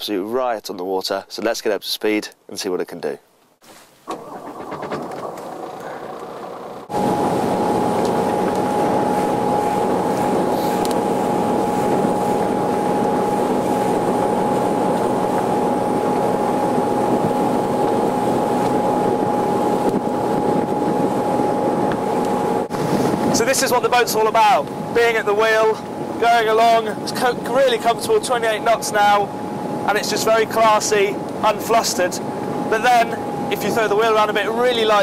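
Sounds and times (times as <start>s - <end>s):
engine whine: 4.1s - 22.8s, 27.4s - 34.9s
boat engine drone: 4.1s - 35.0s.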